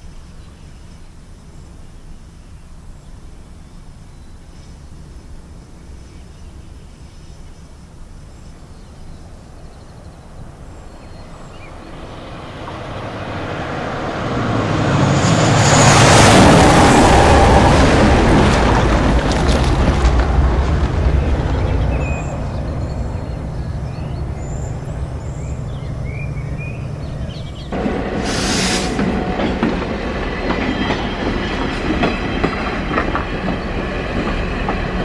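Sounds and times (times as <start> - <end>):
jet railcar roaring past: 9.2 - 35.0.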